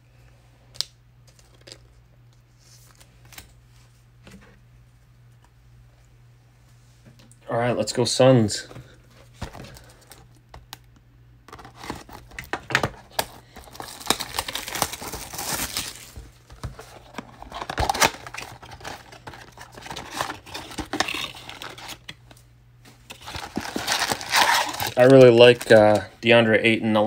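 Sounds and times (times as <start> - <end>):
plastic shrink-wrap crinkling and tearing: 11.5 - 22.1, 23.1 - 26.1.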